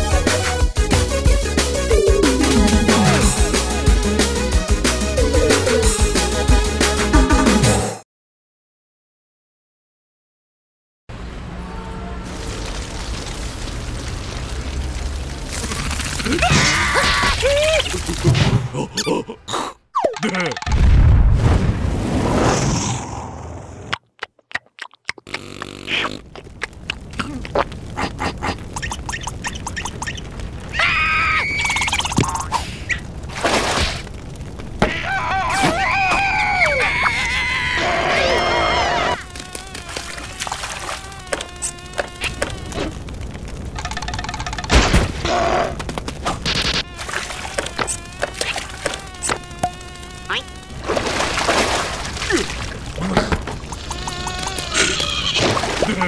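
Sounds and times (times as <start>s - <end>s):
rising whine: 1.8s - 3.7s
wordless cartoon vocal noises: 1.8s - 4.0s, 15.7s - 20.6s, 24.5s - 33.1s, 34.8s - 43.2s, 45.2s - 51.0s, 52.1s - 56.0s
splashy liquid rush: 12.3s - 18.3s, 33.2s - 34.2s, 39.2s - 43.3s, 46.6s - 49.0s, 50.3s - 56.0s
cartoon clicking effects: 19.9s - 20.9s, 23.9s - 27.7s, 28.7s - 30.3s, 31.6s - 32.5s, 43.7s - 45.0s, 46.4s - 50.6s, 53.5s - 55.1s
buzzing drone with clicks: 25.2s - 26.5s, 39.1s - 44.7s, 45.9s - 51.2s.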